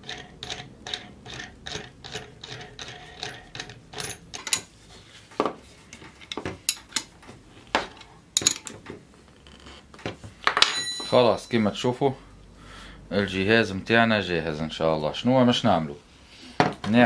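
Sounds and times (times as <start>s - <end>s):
wrench clinking on metal: 2.1s - 4.7s, 8.4s - 8.8s, 10.6s - 11.6s.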